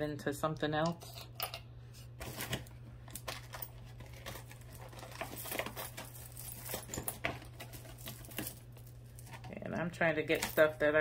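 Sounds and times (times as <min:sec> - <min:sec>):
jewelry clicking and rattling: 0:03.1 - 0:09.5.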